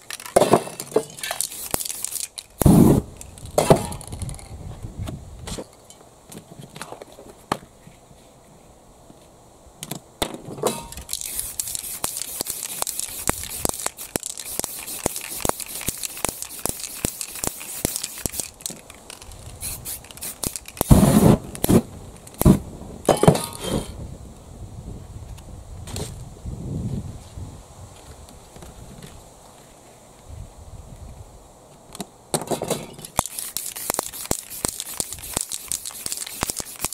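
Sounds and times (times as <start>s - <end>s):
paper stencil rustling: 1.2s - 3.0s, 10.8s - 21.7s, 33.1s - 36.9s
spray paint can hissing: 1.2s - 3.1s, 10.7s - 21.8s, 33.0s - 36.9s
small clicks: 11.0s - 20.9s, 33.0s - 36.9s.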